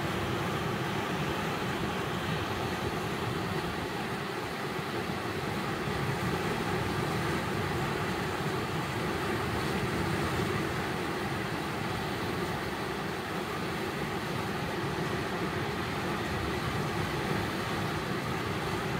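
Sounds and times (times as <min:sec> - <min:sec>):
river water rushing: 0:00.0 - 0:18.9.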